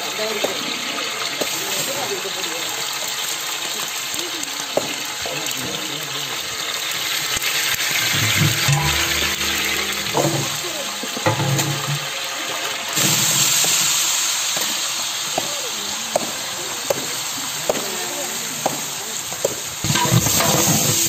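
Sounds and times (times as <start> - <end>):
onions sizzling in hot oil: 0.0 - 21.0
metal ladle scraping pot: 7.9 - 12.2.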